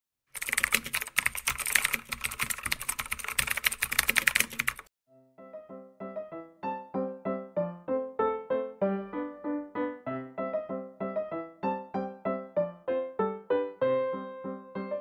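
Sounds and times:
rapid keyboard typing: 0:00.3 - 0:04.9
simple piano-like melody: 0:00.4 - 0:15.0.

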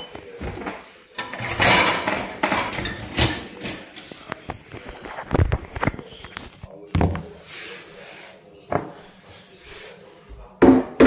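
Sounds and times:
objects knocking and thudding: 0:10.6 - 0:11.0.

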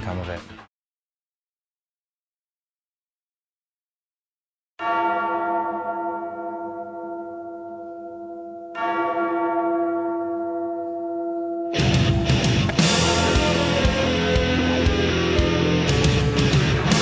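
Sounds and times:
large bell tolling: 0:04.8 - 0:17.0.

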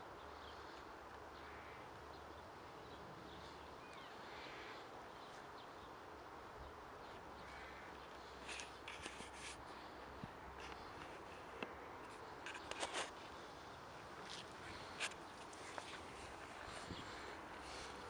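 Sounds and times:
light clicks or rustles: 0:08.4 - 0:13.4.

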